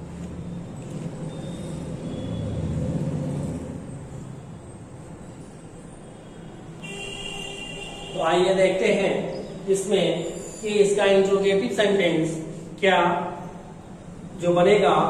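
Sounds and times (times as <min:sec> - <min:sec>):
vehicle engine passing: 0:00.0 - 0:04.6.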